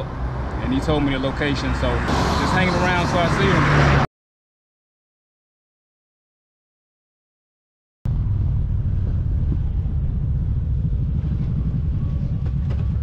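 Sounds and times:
motorcycle engine rumble: 0:08.1 - 0:13.0
wind buffeting microphone: 0:08.1 - 0:13.0.

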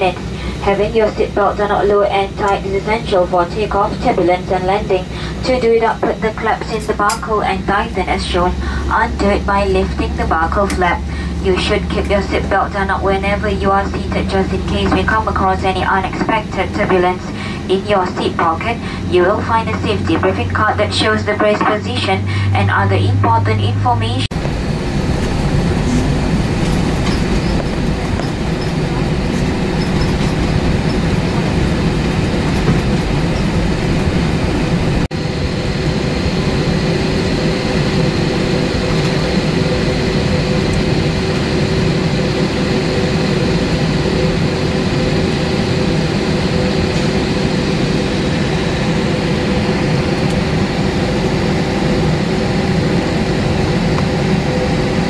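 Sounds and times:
jet engine cabin hum: 0:00.0 - 0:55.0
constant rushing noise: 0:24.3 - 0:55.0.

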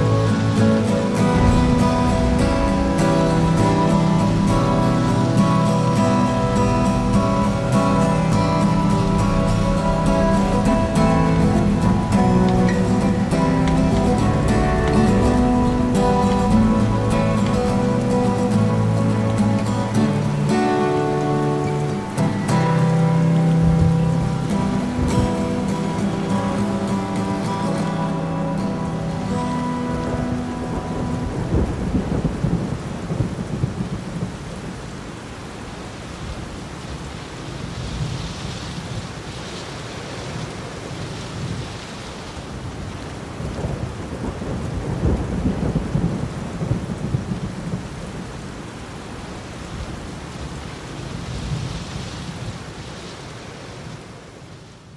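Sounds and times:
steady rain: 0:00.0 - 0:54.9
thunder rolling: 0:01.2 - 0:19.7, 0:30.6 - 0:34.4.

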